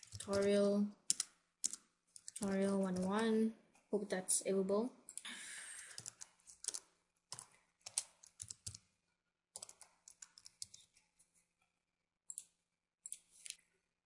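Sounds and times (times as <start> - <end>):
keyboard typing: 0.0 - 3.4, 5.1 - 9.0, 9.6 - 11.1, 12.3 - 13.6.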